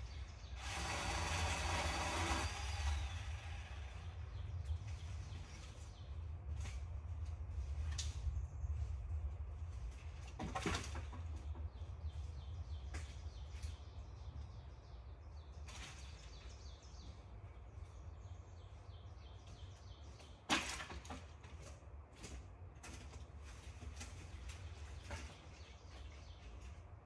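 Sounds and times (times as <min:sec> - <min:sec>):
small birds chirping: 0:00.0 - 0:06.7.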